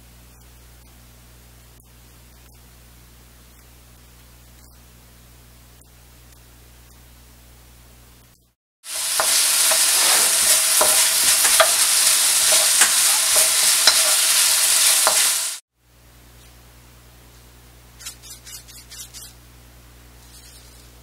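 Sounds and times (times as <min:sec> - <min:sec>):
onion sizzling in a wok: 0:08.8 - 0:15.6
wooden spatula scraping a pan: 0:08.9 - 0:15.4
faint hiss: 0:08.9 - 0:15.6.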